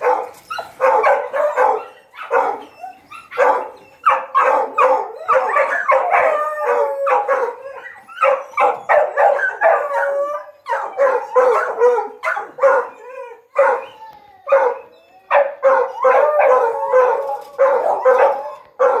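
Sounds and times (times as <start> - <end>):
dogs barking: 0.0 - 13.9, 14.5 - 19.0
dog wavering howl: 5.2 - 12.0, 12.8 - 18.8.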